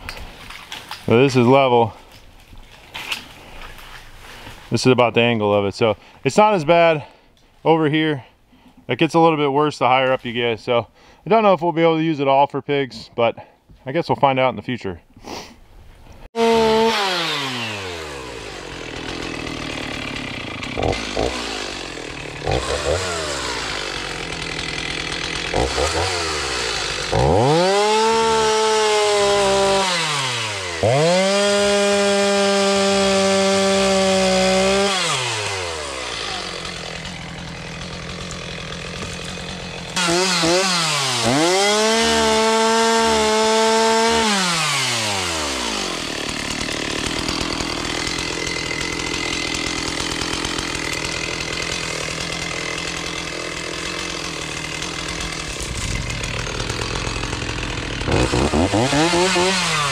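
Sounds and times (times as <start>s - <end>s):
chainsaw idling: 16.3s - 59.9s
chainsaw revving and cutting: 16.3s - 59.9s.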